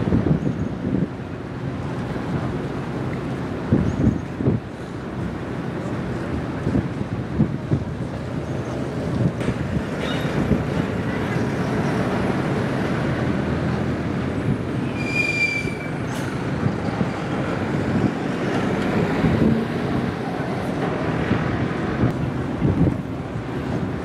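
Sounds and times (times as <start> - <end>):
water noise: 0.0 - 24.0
wind rumbling on microphone: 0.0 - 24.0.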